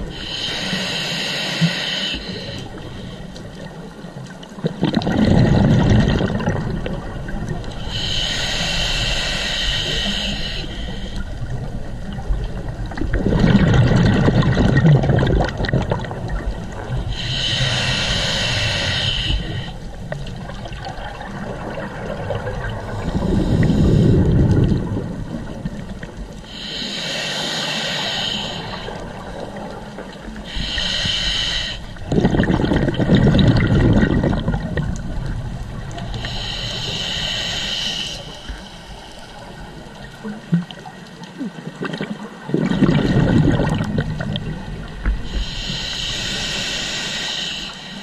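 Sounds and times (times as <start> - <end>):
regulator inhale hiss: 0.0 - 3.8, 7.6 - 11.6, 17.0 - 20.0, 22.8 - 24.8, 26.4 - 32.1, 35.9 - 40.0, 45.0 - 48.0
exhaled bubbles gurgling: 0.0 - 48.0.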